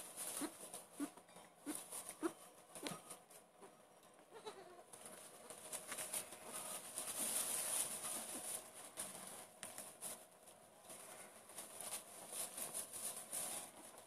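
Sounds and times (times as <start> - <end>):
rustling and scuffing in straw: 0.0 - 2.4, 5.0 - 14.0.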